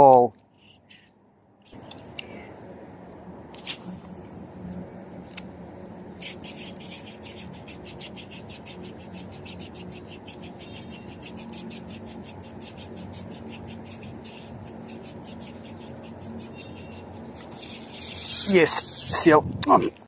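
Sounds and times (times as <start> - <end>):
fishing reel ticking: 17.6 - 19.2.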